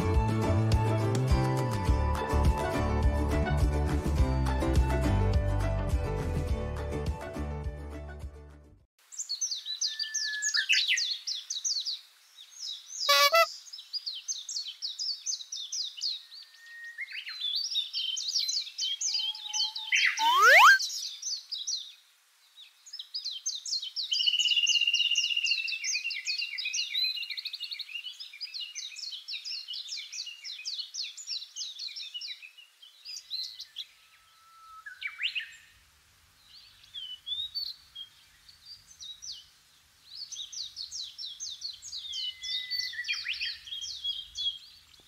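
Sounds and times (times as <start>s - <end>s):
birds chirping and trilling: 9.2s - 22.0s, 22.6s - 35.8s, 36.4s - 45.0s
bird whistled calls: 13.0s - 13.5s, 19.0s - 21.0s, 42.1s - 43.7s.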